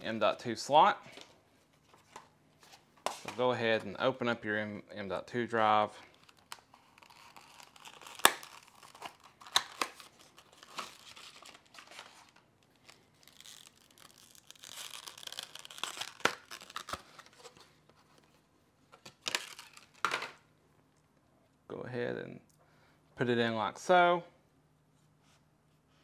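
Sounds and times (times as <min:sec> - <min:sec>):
plastic packaging crinkling: 0:06.0 - 0:17.7, 0:19.0 - 0:20.4.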